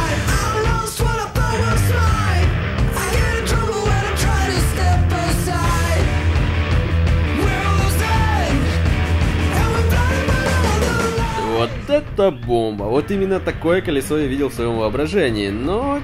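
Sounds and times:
person singing: 0.0 - 6.2, 7.3 - 11.8
steady driving beat: 0.0 - 15.5.

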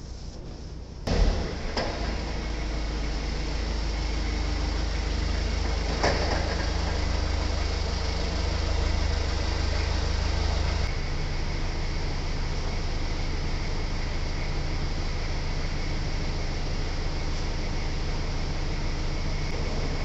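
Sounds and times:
forklift engine humming: 0.0 - 20.0
steady low hum: 0.0 - 20.0.

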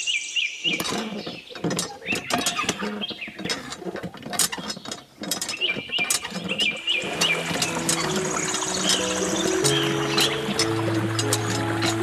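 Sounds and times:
stick clicking and scraping in slot: 0.7 - 12.0.

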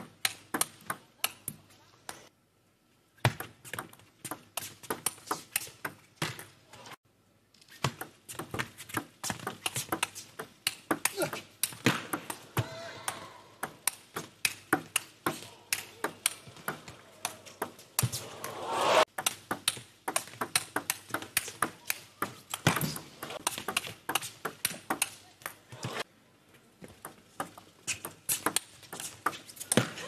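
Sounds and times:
brief rising swell of noise: 18.1 - 19.1.

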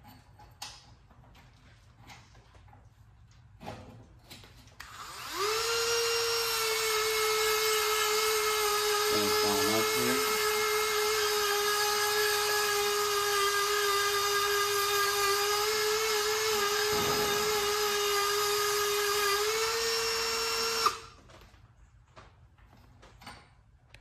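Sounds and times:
rotary tool whining: 4.5 - 21.2.

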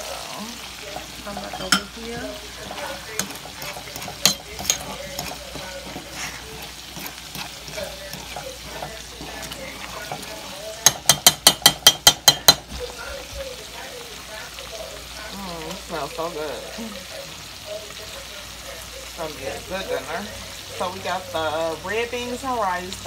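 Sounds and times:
spoon stirring a pot: 0.0 - 15.0
food sizzling: 0.0 - 23.0
spoon knocking against pot: 1.4 - 6.1, 7.0 - 12.9.

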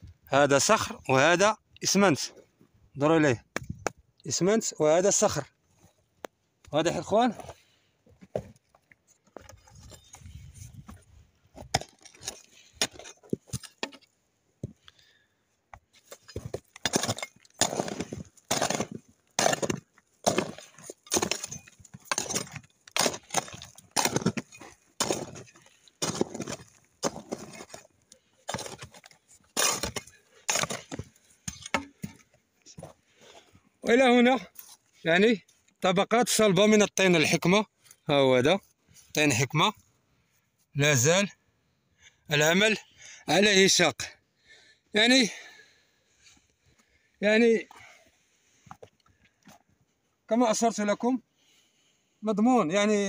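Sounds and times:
pickaxe chipping cement and rock: 11.6 - 14.0, 16.3 - 27.8, 28.4 - 32.2.

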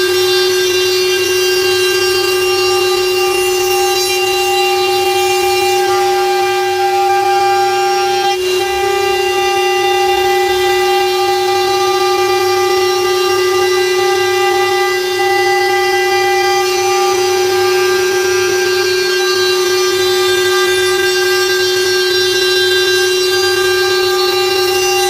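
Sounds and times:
router spindle high whine: 0.0 - 25.0.

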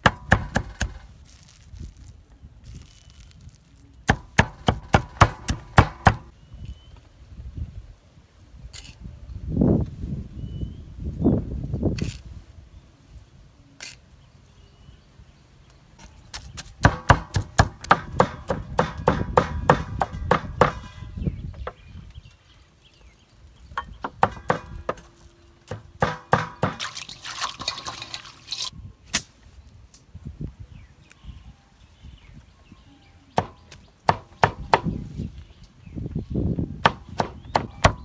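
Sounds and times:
knife chopping on wooden board: 25.7 - 26.9.

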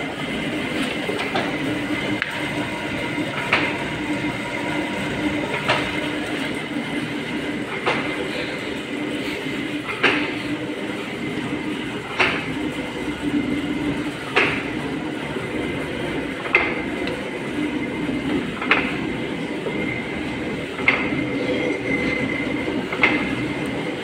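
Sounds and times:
lathe machine hum: 0.0 - 24.0.

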